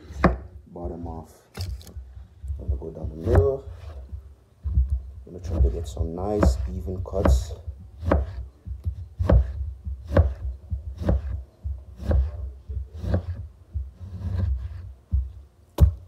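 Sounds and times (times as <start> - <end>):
knife tapping cutting board: 4.6 - 11.4
knife slicing orange: 5.4 - 11.4, 12.0 - 12.4, 13.0 - 13.4.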